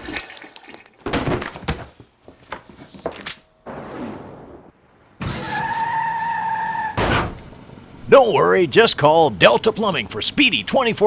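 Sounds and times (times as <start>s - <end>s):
thunks cracks and knocks: 1.0s - 3.3s.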